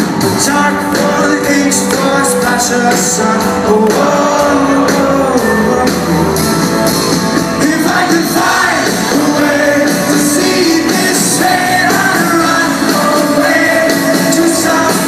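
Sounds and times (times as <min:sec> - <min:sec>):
live rock band with singer: 0:00.0 - 0:15.0.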